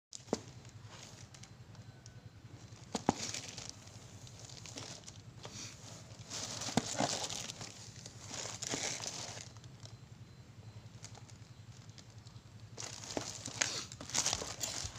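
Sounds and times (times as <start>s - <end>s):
plastic bag rustling and crinkling: 2.6s - 10.0s, 11.0s - 14.9s.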